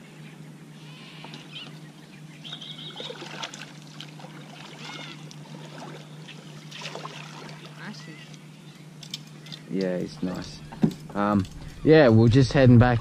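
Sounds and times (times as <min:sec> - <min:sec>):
water splashing and trickling: 0:02.5 - 0:08.4.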